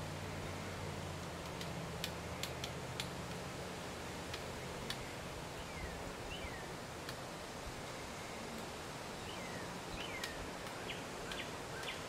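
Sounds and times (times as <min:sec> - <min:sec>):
woodpecker pecking taps: 0:01.4 - 0:03.4, 0:10.2 - 0:12.0.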